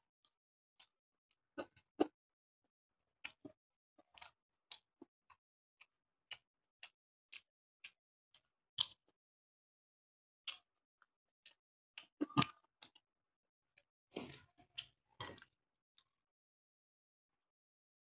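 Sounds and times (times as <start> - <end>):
wet clicks of eating: 0.2 - 1.0, 1.6 - 2.2, 3.2 - 9.2, 10.5 - 13.1, 13.8 - 16.1.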